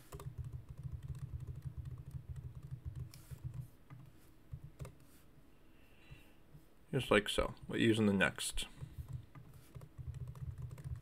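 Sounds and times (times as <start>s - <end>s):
computer keyboard typing: 0.0s - 5.0s, 8.8s - 11.0s.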